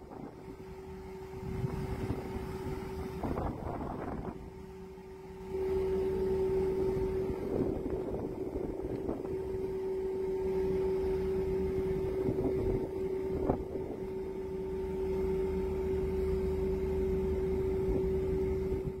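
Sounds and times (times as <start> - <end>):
wind on microphone: 0.0 - 4.7, 5.8 - 10.0, 10.6 - 14.4, 17.3 - 19.0
boat engine running: 0.0 - 19.0.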